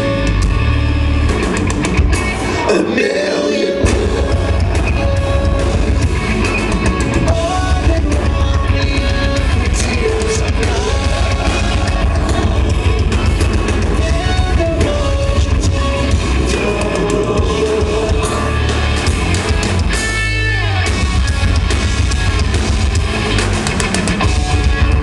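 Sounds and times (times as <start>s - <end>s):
bass and drums: 0.0s - 3.0s, 3.8s - 25.0s
distorted electric guitars: 0.0s - 25.0s
person singing: 2.6s - 6.0s, 6.8s - 19.1s.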